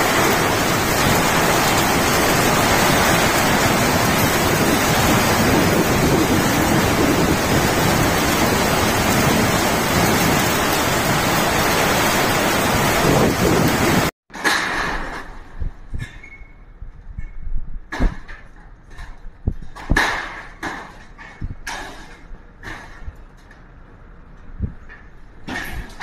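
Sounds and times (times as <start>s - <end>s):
strong wind: 0.0s - 14.1s, 15.0s - 20.1s, 22.4s - 26.0s
heavy rain pouring: 0.0s - 14.2s.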